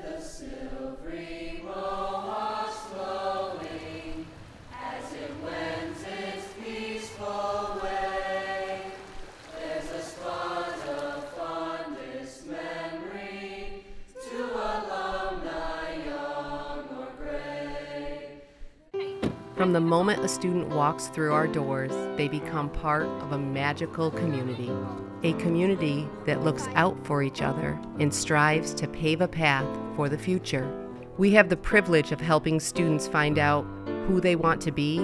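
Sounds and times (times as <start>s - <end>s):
choir singing: 0.0s - 18.5s, 19.8s - 27.7s.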